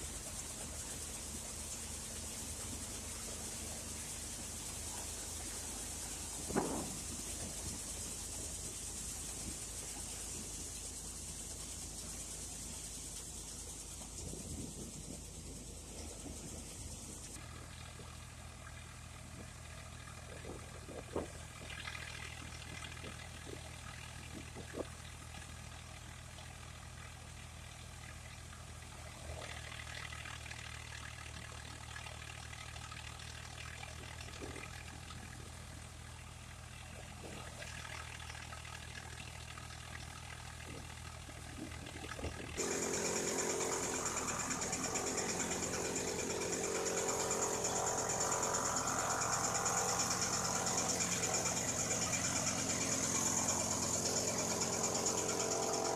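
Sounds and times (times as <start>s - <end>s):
thresher blowing straw with hiss: 0.0s - 17.4s, 42.2s - 55.9s
tractor diesel engine running: 0.0s - 55.9s.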